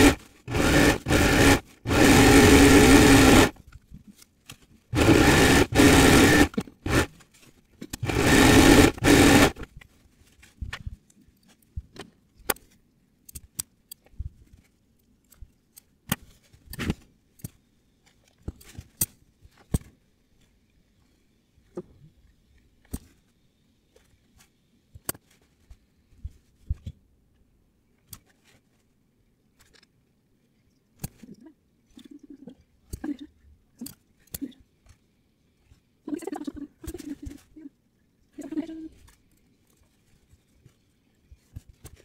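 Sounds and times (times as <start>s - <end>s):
machine-like noise: 0.0s - 3.5s, 4.9s - 7.1s, 8.0s - 9.6s.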